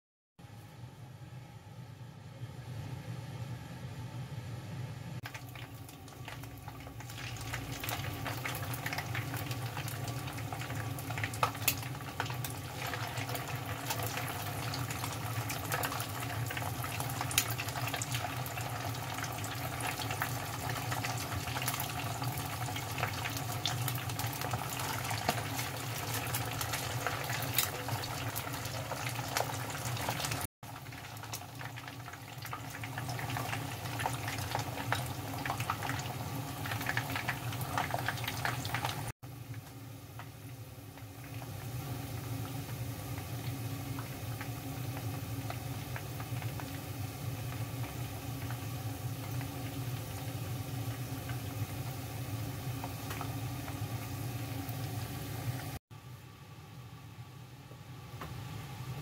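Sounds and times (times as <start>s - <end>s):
low hum: 0.4s - 7.6s
food deep-frying in oil: 5.2s - 59.0s.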